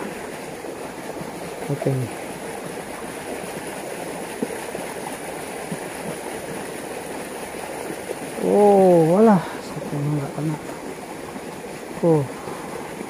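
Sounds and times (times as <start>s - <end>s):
water rushing along a channel: 0.0s - 13.0s.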